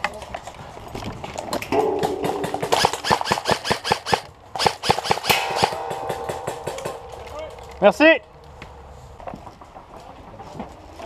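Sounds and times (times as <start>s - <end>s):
airsoft rifle rapid clicks: 2.6s - 5.4s.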